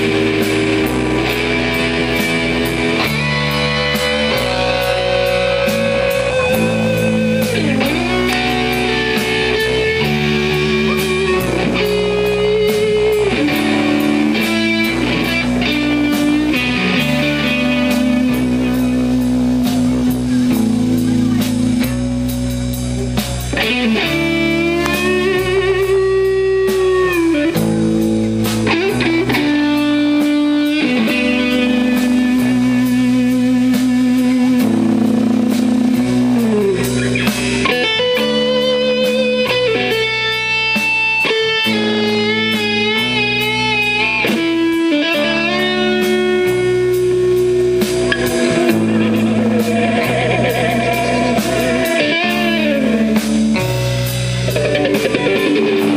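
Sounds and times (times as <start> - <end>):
lead guitar with vibrato: 0.0 - 55.9
live rock band playing: 0.0 - 55.9.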